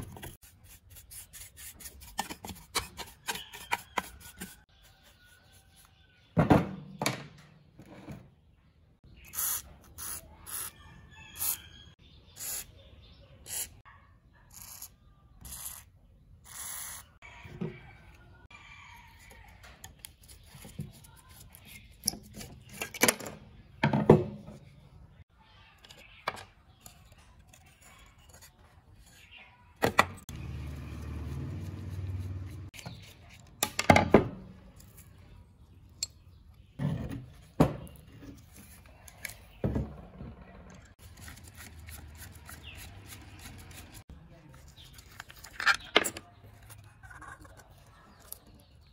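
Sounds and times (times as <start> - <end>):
metal parts knocking and scraping: 44.8 - 48.4.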